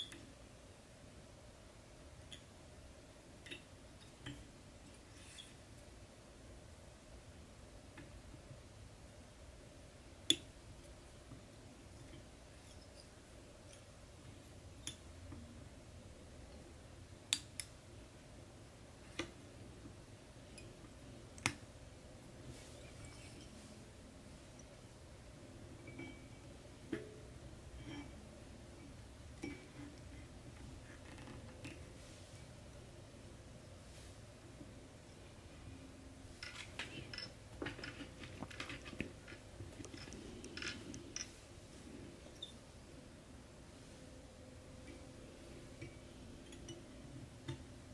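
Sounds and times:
faint low hum: 0.0s - 47.9s
hands handling a vise: 36.4s - 41.4s.

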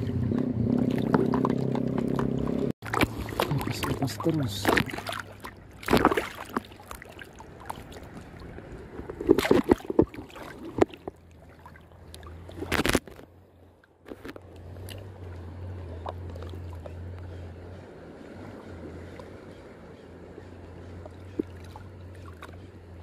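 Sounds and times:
seawater sloshing and splashing: 0.0s - 23.0s
loud splashes: 0.7s - 8.5s, 9.2s - 13.1s.

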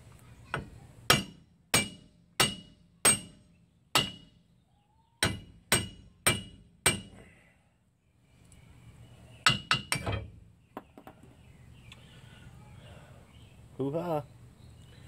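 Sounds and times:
hammer striking steel wheel hub: 1.1s - 4.3s, 5.2s - 7.2s, 9.5s - 10.3s.

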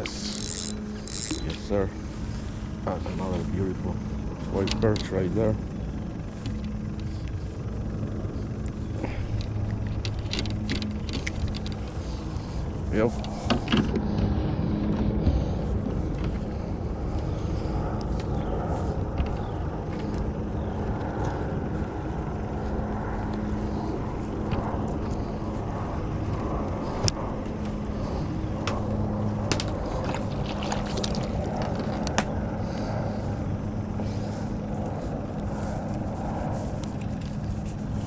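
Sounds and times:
faint constant hum: 0.0s - 38.0s
steady low rumble: 0.0s - 38.0s
clicks and knocks handling fish: 8.6s - 12.4s, 13.2s - 14.3s, 28.6s - 32.4s.

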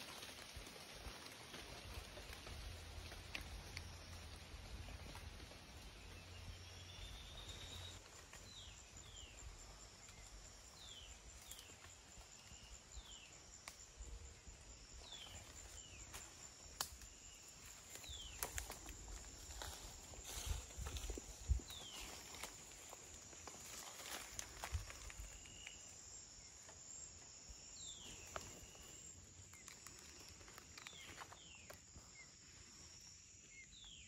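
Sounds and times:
high insect whine: 0.0s - 34.0s.

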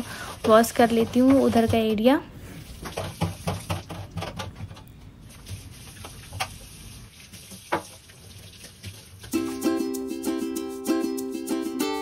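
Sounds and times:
splashes and knocks while scrubbing: 0.2s - 9.4s
tap water running into sink: 2.6s - 4.7s, 5.3s - 9.4s.

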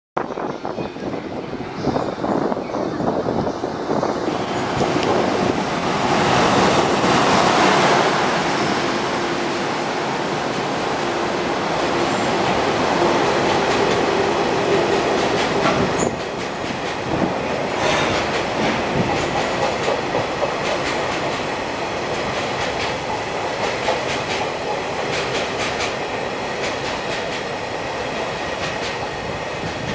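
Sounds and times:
train wheels clattering over rail joints: 13.4s - 27.6s, 28.5s - 29.9s.

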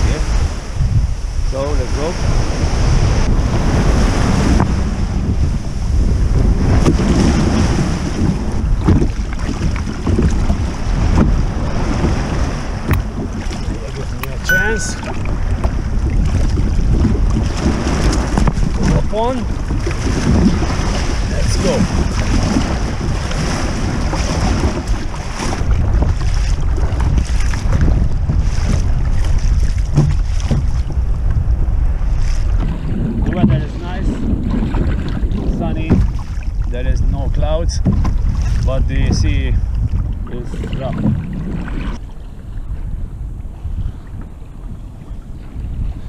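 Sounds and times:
surf splashing around kayak: 0.0s - 46.0s
wind buffeting microphone: 0.0s - 46.0s
low thump: 29.9s - 31.4s, 37.8s - 38.3s.

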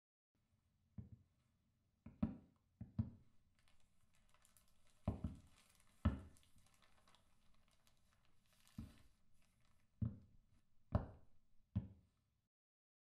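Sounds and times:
sheet rustling and crinkling: 3.5s - 10.0s.

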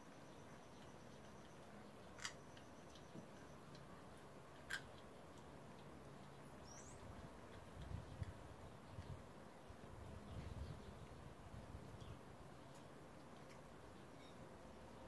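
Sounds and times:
puppy chewing meat: 0.8s - 9.6s, 11.9s - 14.4s.

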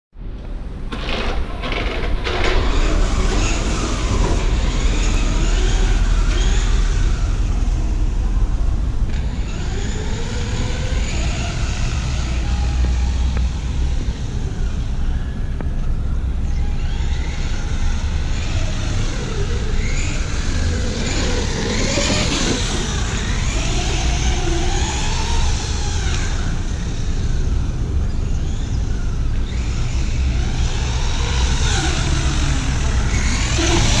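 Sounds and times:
toy truck electric motor whining: 1.0s - 7.8s, 16.6s - 27.8s, 28.4s - 34.0s.

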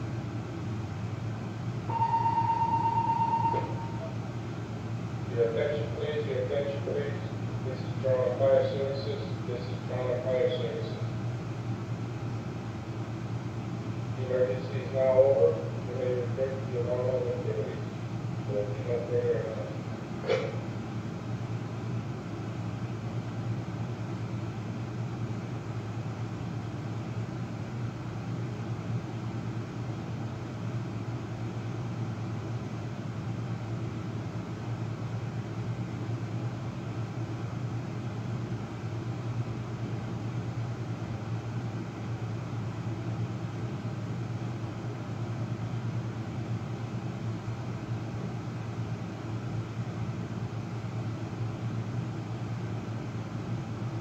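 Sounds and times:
low mechanical hum: 0.0s - 54.0s.

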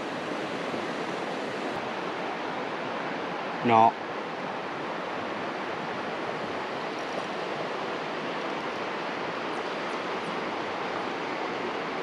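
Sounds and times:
steady rushing hiss: 0.0s - 2.2s.

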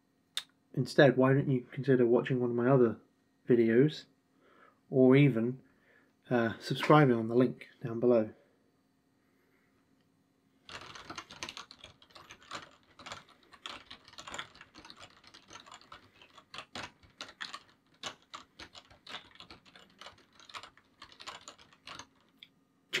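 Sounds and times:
typing on a keyboard: 10.7s - 23.0s.

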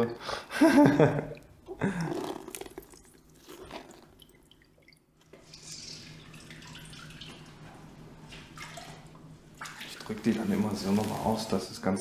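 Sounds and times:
water splashing in a sink: 2.2s - 11.4s
gloves washed by hand: 5.3s - 11.7s.

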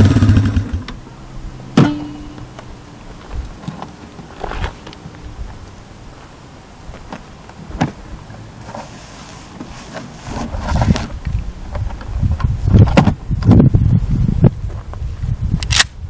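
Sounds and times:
gun scraping out of case: 4.3s - 4.8s, 8.6s - 11.1s.

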